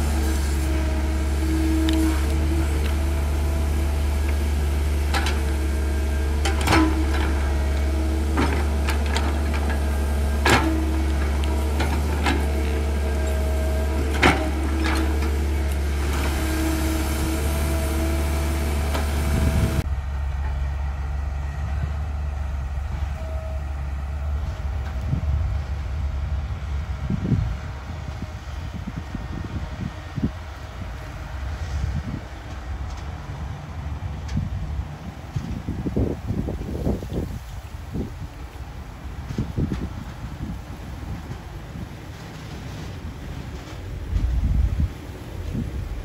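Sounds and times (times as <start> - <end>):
hydraulic whine: 0.0 - 26.5
dump truck engine rumble: 0.0 - 46.0
excavator engine running: 0.0 - 46.0.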